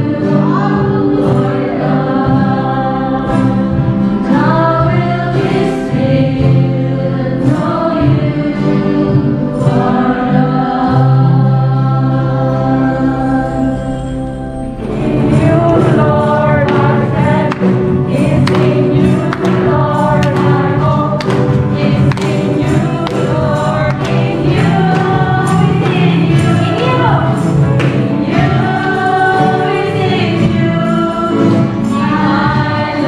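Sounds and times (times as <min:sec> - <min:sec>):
congregation singing praise song: 0:00.0 - 0:33.0
steady beat: 0:14.7 - 0:29.3.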